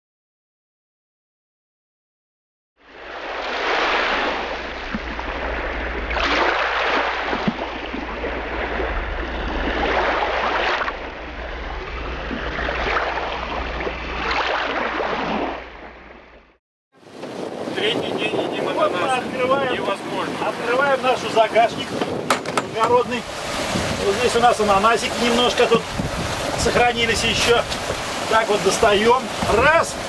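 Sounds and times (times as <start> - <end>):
water rushing along a boat hull: 2.8 - 30.0.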